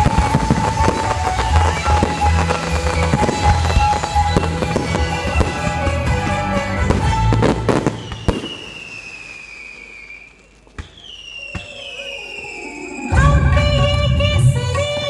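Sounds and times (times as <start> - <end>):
music: 0.0 - 8.3, 11.5 - 15.0
fireworks bangs: 0.0 - 13.0
slow falling tones: 11.4 - 14.4.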